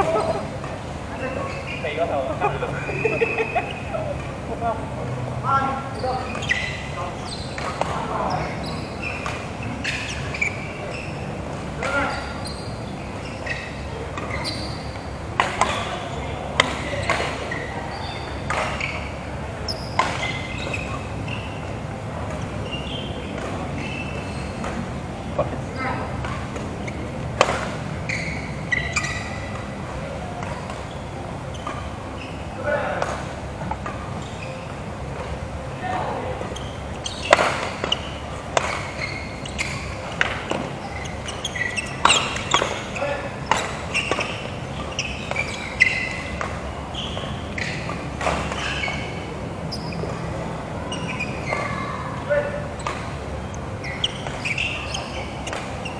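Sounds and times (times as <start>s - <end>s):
shoe squeaks on court floor: 0.0s - 4.4s, 5.5s - 55.9s
rackets striking shuttlecock: 36.4s - 49.4s, 52.8s - 55.9s.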